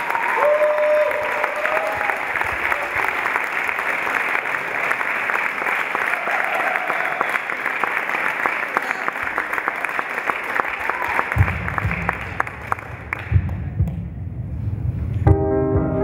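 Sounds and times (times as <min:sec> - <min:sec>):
audience applauding: 0:00.0 - 0:13.7
low rumble: 0:11.4 - 0:16.0.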